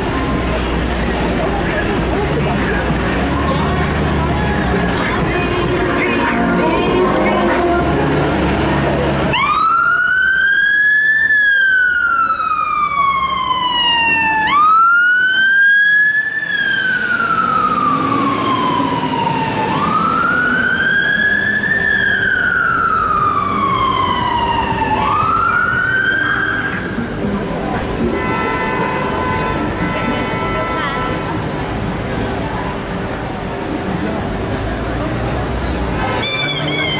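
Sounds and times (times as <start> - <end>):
fire engine siren wailing: 5.6 - 27.1.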